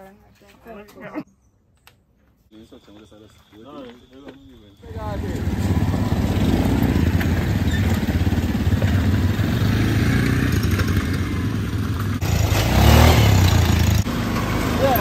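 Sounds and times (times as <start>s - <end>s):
quad bike engines running: 4.8s - 15.0s.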